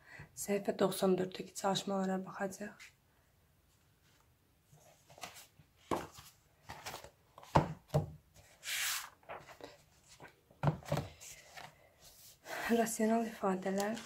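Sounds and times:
pages turning: 4.8 - 7.6, 8.4 - 12.4, 13.5 - 14.0
book knocks and taps: 5.9 - 6.2, 6.8 - 8.2, 10.6 - 11.1.

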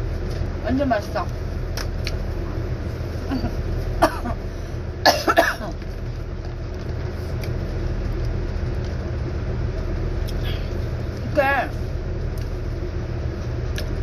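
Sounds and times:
steady low rumble: 0.0 - 14.0
person coughing: 3.3 - 4.4, 5.0 - 5.8.

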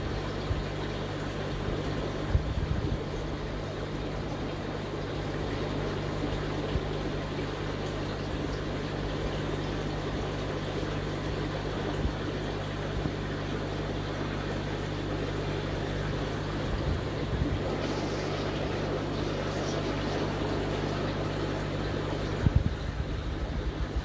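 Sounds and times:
aquarium pump humming: 0.0 - 24.0
water rushing: 13.8 - 24.0.

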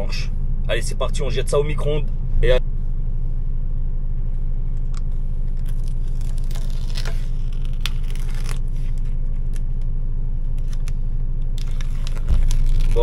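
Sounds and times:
steady low hum: 0.0 - 13.0
plastic film crinkling and tearing: 5.0 - 9.8, 10.5 - 13.0.

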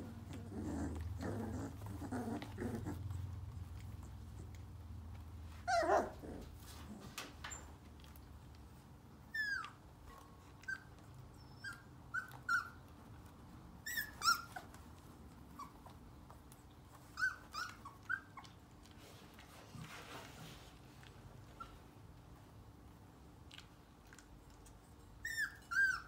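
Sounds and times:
puppies yipping and squeaking: 5.5 - 6.5, 9.2 - 18.8, 24.9 - 26.0.

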